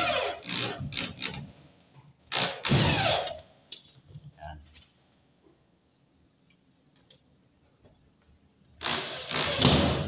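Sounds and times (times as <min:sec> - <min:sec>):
electric drill driving screw: 0:00.0 - 0:01.4, 0:02.3 - 0:03.4, 0:08.8 - 0:10.0.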